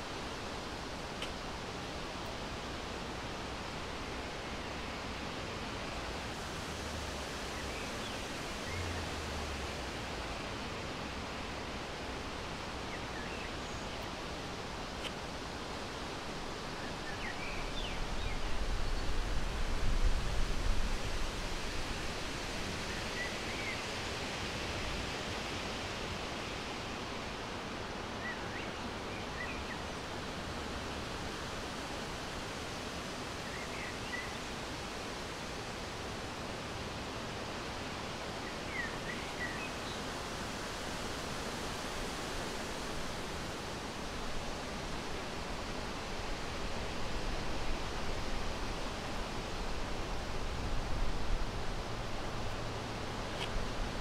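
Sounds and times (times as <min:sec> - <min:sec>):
steady hiss: 0:00.0 - 0:54.0
wind rumble on microphone: 0:17.5 - 0:23.3.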